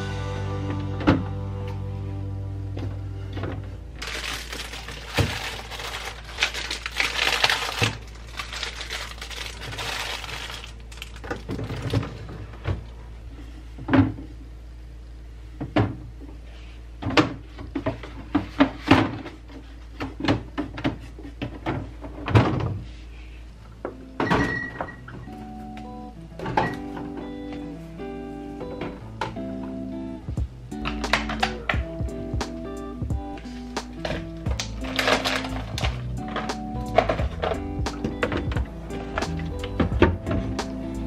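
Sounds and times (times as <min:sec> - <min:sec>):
plastic bag rustling: 0:04.0 - 0:12.3, 0:33.4 - 0:40.6.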